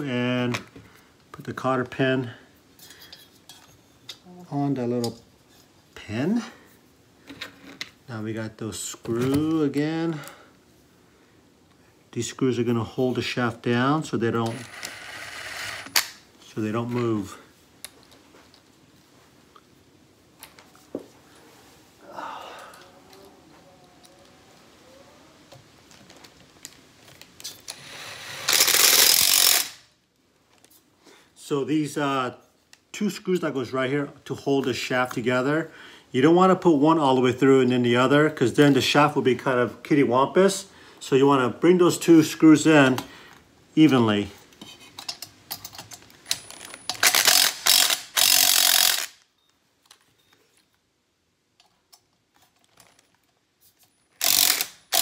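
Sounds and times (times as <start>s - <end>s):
cordless screwdriver spinning: 14.5s - 16.1s, 27.7s - 29.8s, 46.4s - 49.2s, 54.2s - 55.0s
ratcheting screwdriver clicking: 45.1s - 49.2s, 54.2s - 55.0s.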